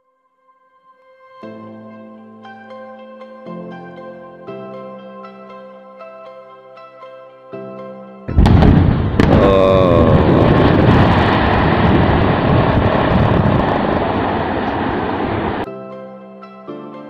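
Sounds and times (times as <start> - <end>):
rumble of tumbling rock: 8.3 - 15.6
dynamite blast: 8.3 - 15.7.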